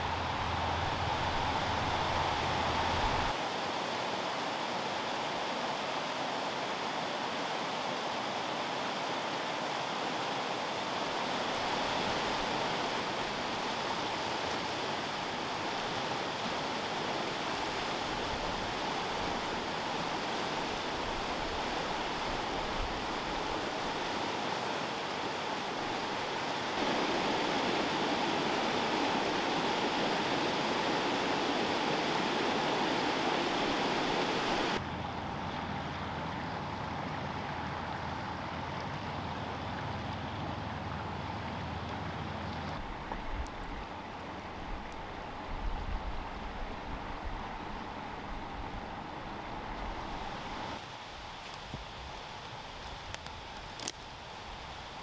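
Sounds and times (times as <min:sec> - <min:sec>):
river rapids roaring: 0:00.0 - 0:55.0.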